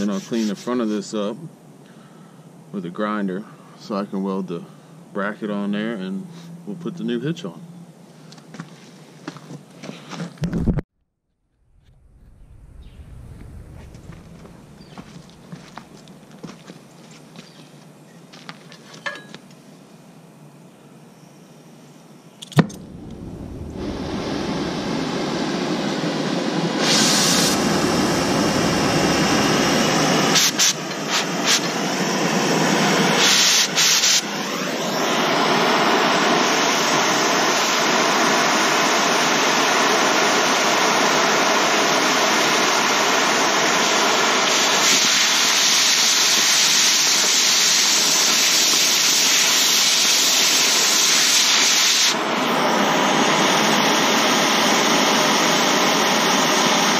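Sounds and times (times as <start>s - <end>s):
cutting torch flame hissing: 0.0s - 1.2s, 11.9s - 16.1s, 22.8s - 56.9s.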